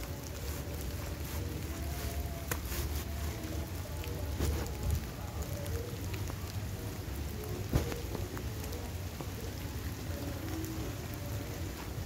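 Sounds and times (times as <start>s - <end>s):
steady rain on wet ground: 0.0s - 12.0s.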